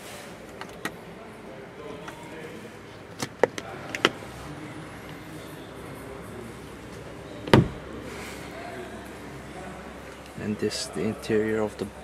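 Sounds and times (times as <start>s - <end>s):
mirror panel thump: 7.5s - 7.8s.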